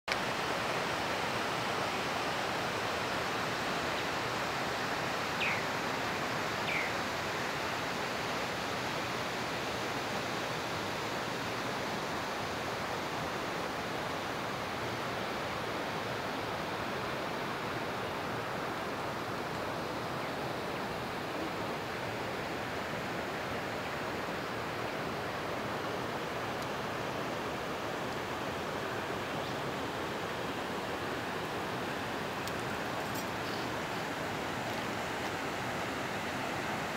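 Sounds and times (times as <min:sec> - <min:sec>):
river water rushing: 0:00.1 - 0:36.9
bird chirps: 0:05.4 - 0:05.6, 0:06.7 - 0:07.0, 0:33.1 - 0:33.7.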